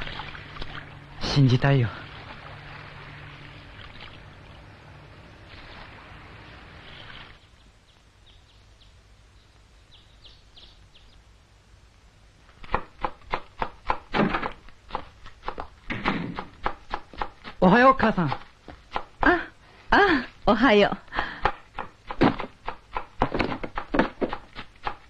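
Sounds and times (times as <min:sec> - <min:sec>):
water lapping: 0:00.0 - 0:07.5
birdsong chirps: 0:03.1 - 0:11.4.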